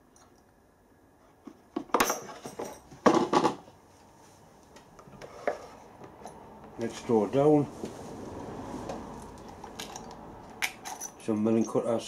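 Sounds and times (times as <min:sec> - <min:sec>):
steel tools clinking in a drawer: 0:01.9 - 0:02.9, 0:09.6 - 0:11.9.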